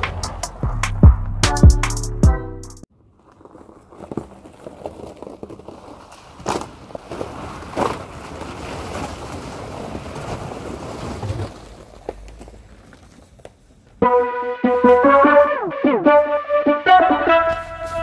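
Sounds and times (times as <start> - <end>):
tyres crunching ice and slush: 3.0 - 13.5
ice cracking: 3.2 - 13.4.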